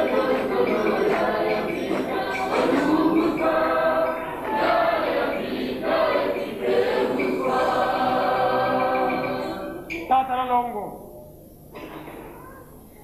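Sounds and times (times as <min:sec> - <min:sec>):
choir singing: 0:00.0 - 0:10.0.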